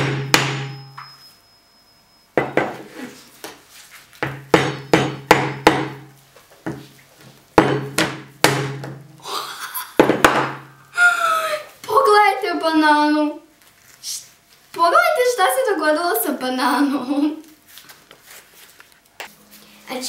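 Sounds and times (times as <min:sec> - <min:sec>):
metal mallet striking frozen banana: 0:00.0 - 0:01.0, 0:04.3 - 0:06.1, 0:07.6 - 0:09.1.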